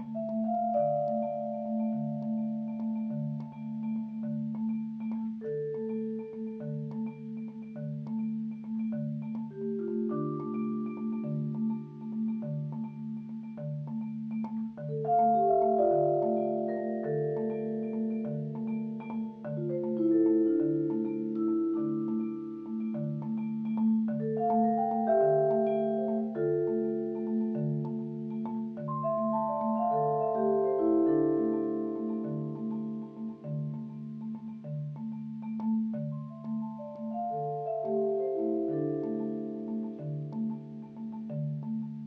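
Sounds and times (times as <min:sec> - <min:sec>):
vibraphone and marimba playing: 0:00.0 - 0:42.0.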